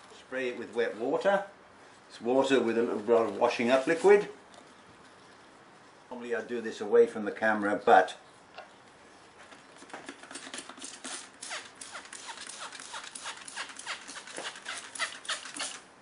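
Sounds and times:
spray bottle squirts: 10.2 - 15.8.

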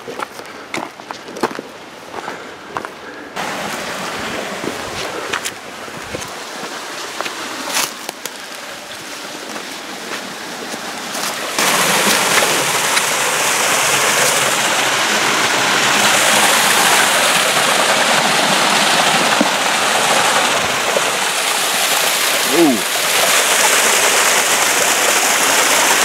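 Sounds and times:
creek water rushing: 0.0 - 26.0.

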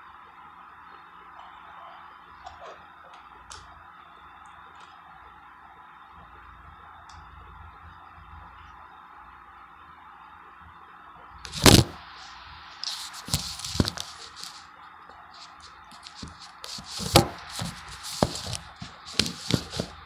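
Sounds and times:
paper wrapper crinkling and tearing: 12.8 - 14.6
clicks and scrapes: 15.4 - 20.0.

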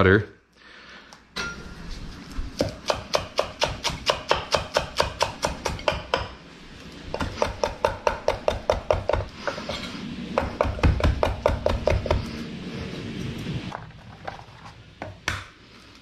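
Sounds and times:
knife chopping on wooden board: 2.6 - 6.4, 7.1 - 9.3, 10.4 - 12.2.

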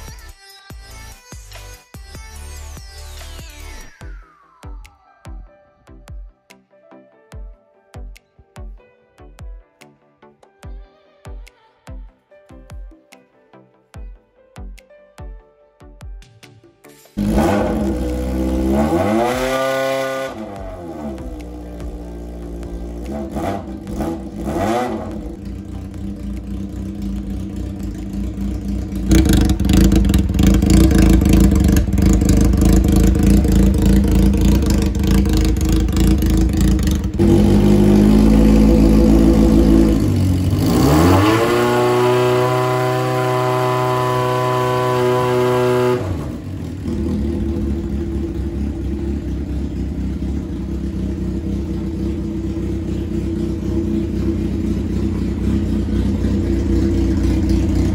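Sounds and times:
motorcycle engine idling and revving: 17.2 - 57.9.

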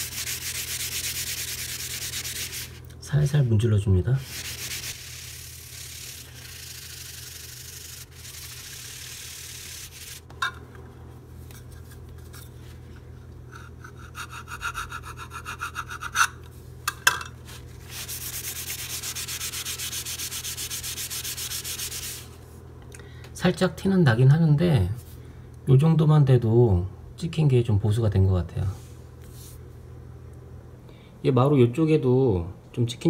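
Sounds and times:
tissue paper rubbing on floor: 0.0 - 2.8, 4.2 - 10.3, 17.5 - 22.4.

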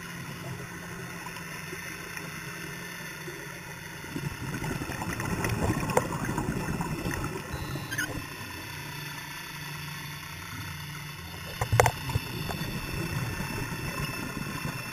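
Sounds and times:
low rumbling crackling noise: 0.0 - 14.9
low underwater hum: 0.0 - 14.9
sharp clicks: 11.4 - 12.6.

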